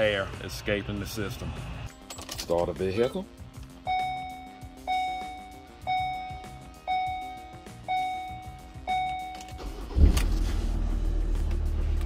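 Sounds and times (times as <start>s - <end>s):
dashboard warning chime: 3.8s - 9.7s
engine starting with low rumble: 8.9s - 12.0s.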